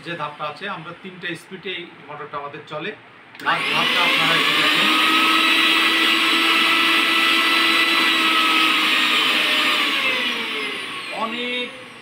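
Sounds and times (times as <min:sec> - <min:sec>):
mixer grinder motor whining: 0:03.4 - 0:12.0.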